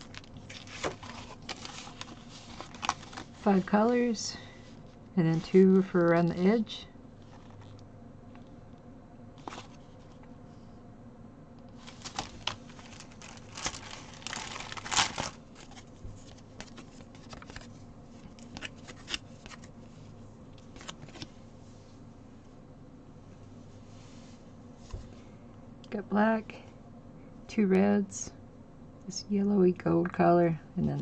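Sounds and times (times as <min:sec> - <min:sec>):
plastic packaging crinkling: 0:00.0 - 0:04.0, 0:11.8 - 0:19.7.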